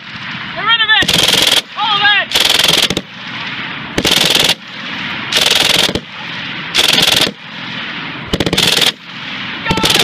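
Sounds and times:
machine gun firing bursts: 1.0 - 1.7, 2.3 - 3.0, 4.0 - 4.6, 5.3 - 6.0, 6.8 - 7.4, 8.3 - 9.0, 9.8 - 10.0
gunfire echo: 4.0 - 4.6, 5.3 - 6.1, 8.3 - 9.1.

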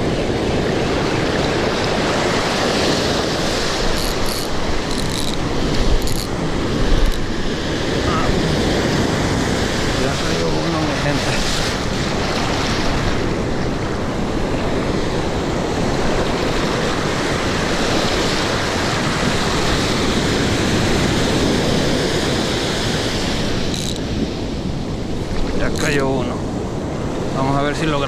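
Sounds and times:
ocean surf washing: 0.0 - 28.0
wind buffeting microphone: 0.0 - 28.0.

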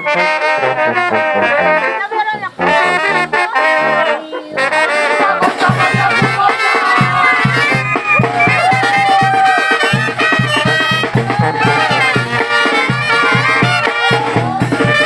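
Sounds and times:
brass band playing melody: 0.0 - 15.0
low bass beat: 4.7 - 15.0.

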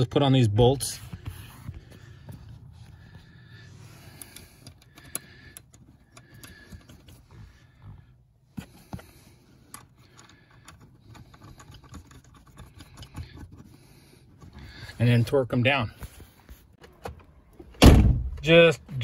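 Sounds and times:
small metallic clicks and scrapes: 8.6 - 14.6.

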